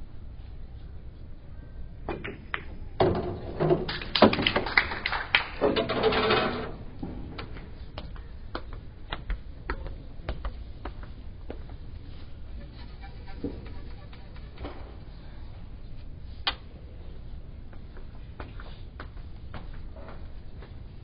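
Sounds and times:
cue striking ball: 2.1s - 4.6s
pool balls clicking: 2.1s - 11.2s.

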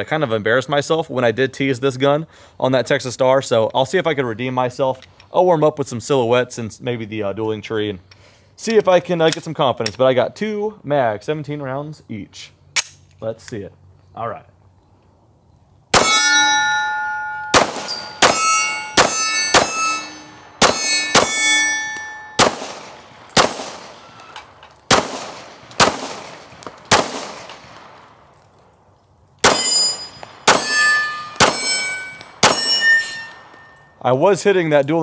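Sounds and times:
pistol shots: 15.9s - 16.7s, 17.4s - 28.2s, 29.4s - 33.7s
bullets clanging on steel targets: 16.0s - 28.0s, 29.4s - 34.0s.

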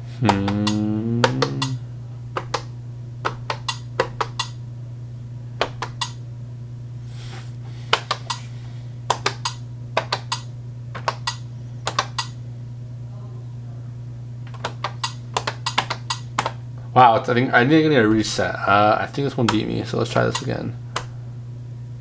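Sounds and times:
steady low hum: 0.0s - 22.0s
plastic buttons clicking: 2.4s - 4.6s, 9.1s - 12.3s, 14.5s - 16.6s.

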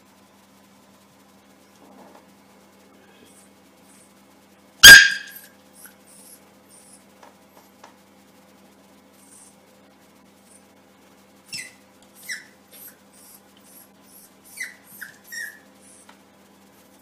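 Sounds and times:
puppy barking: 4.8s - 5.5s, 11.5s - 13.4s.

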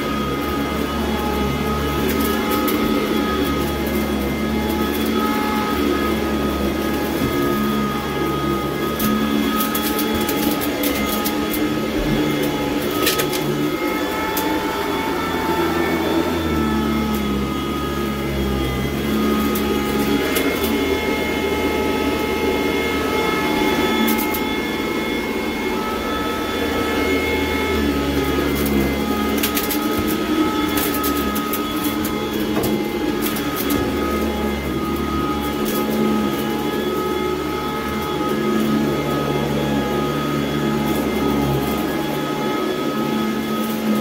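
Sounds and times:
grit crunching in vacuum: 0.0s - 44.0s
vacuum cleaner running over carpet: 0.0s - 44.0s.

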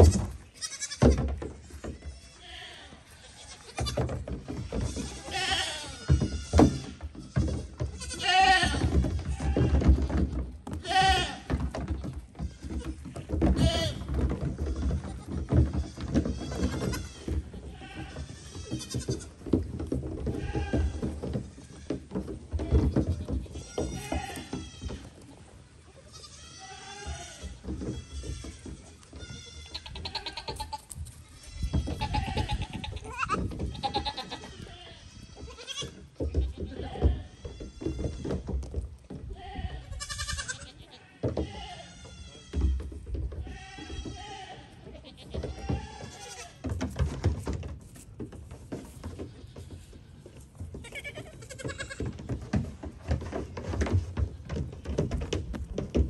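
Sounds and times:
goat kid bleating: 0.0s - 1.2s, 1.9s - 4.0s, 4.7s - 9.8s, 10.8s - 11.5s, 12.5s - 14.0s, 15.0s - 19.4s, 20.4s - 21.0s, 22.7s - 25.1s, 25.9s - 38.2s, 39.3s - 42.6s, 43.4s - 46.6s, 50.8s - 52.0s
hooves clattering on hollow hull: 0.0s - 56.0s.

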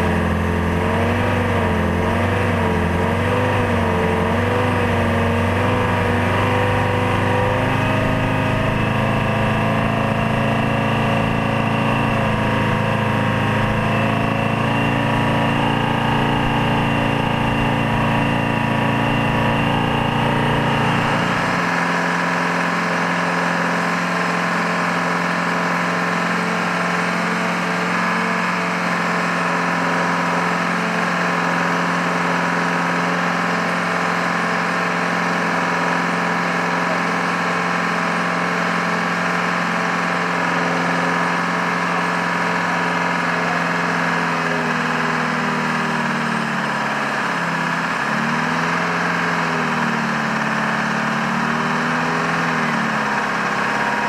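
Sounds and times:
high whine: 0.0s - 23.4s
tow tug engine drone: 0.0s - 54.0s.

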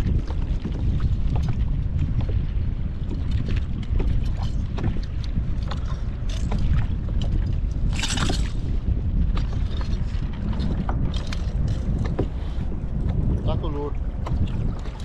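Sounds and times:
water slapping against kayak hull: 0.0s - 15.0s
wind buffeting microphone: 0.0s - 15.0s.

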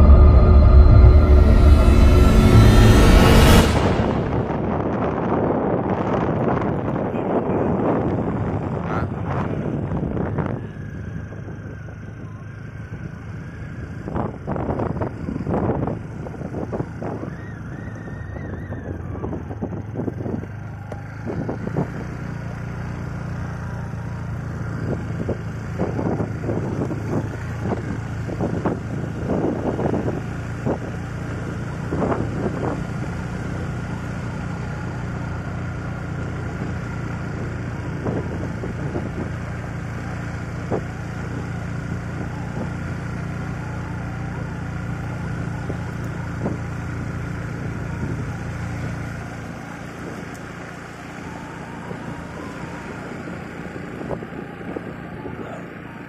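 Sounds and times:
wind noise: 0.0s - 11.8s, 24.8s - 35.1s, 36.4s - 50.3s, 51.3s - 55.6s
vehicle engine running: 0.0s - 54.6s.

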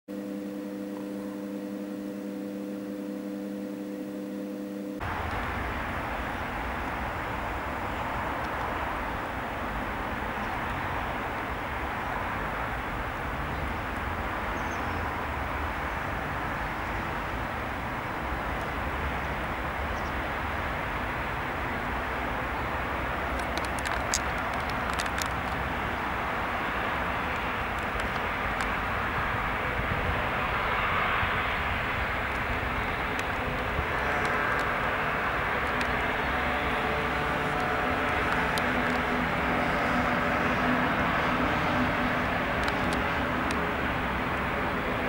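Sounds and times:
rush of outdoor noise: 0.1s - 45.0s
steady hum of held tones: 0.1s - 45.0s
turboprop engines droning: 0.1s - 45.0s
sharp clicks: 23.3s - 25.7s, 27.3s - 28.8s, 42.6s - 43.6s.

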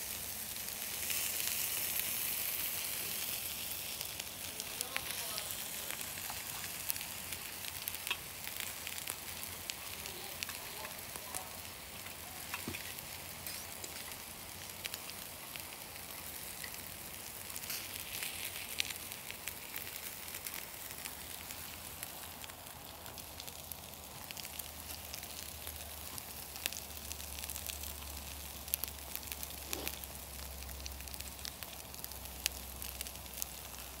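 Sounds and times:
meat sizzling over charcoal: 0.0s - 34.0s
small pops and crackles: 0.0s - 34.0s.

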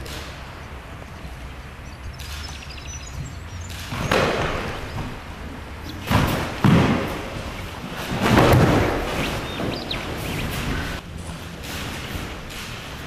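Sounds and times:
body thudding on padded mat: 6.0s - 9.7s.

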